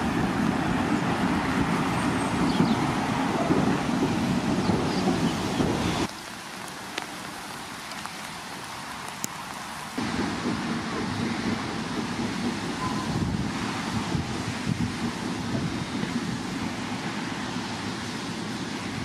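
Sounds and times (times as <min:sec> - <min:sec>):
rain and wind: 0:00.0 - 0:19.0.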